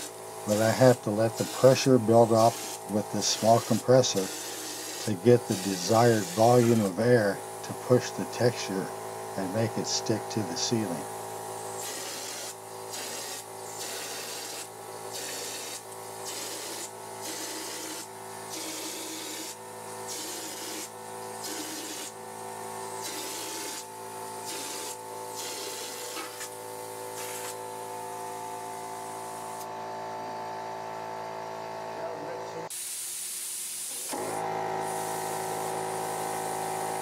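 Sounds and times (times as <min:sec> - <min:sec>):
hopper gun spraying bursts: 0:00.0 - 0:22.2, 0:32.8 - 0:36.5
air compressor humming: 0:00.0 - 0:37.0.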